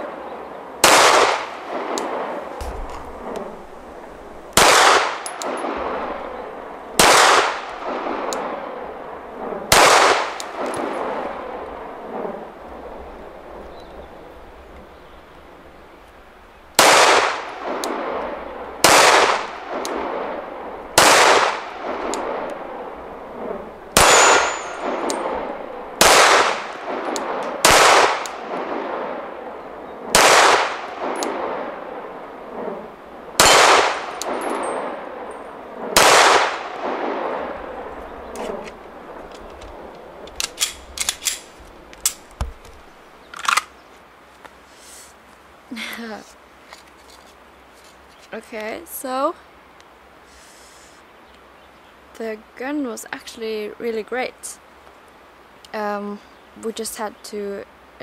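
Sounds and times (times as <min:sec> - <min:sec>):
pistol shots echoing: 0:00.8 - 0:08.5, 0:09.7 - 0:11.2, 0:16.8 - 0:20.4, 0:21.0 - 0:22.7, 0:23.9 - 0:29.0, 0:30.1 - 0:31.6, 0:33.4 - 0:35.0, 0:36.0 - 0:37.7
gun handling clicks: 0:01.9 - 0:03.5, 0:05.2 - 0:05.7, 0:34.2 - 0:34.6, 0:38.3 - 0:43.8.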